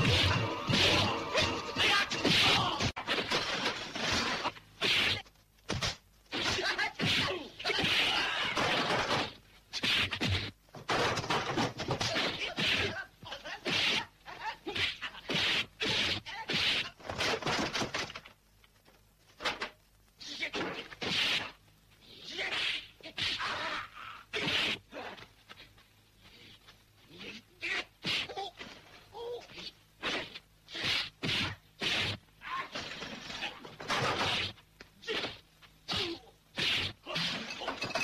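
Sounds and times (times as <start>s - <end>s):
punch and kick whacks: 4.8s - 10.5s.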